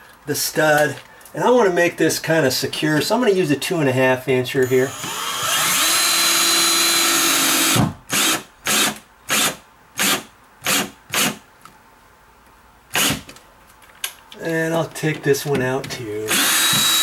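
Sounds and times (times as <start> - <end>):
cordless drill driving screw: 4.9 - 11.4, 16.3 - 17.0.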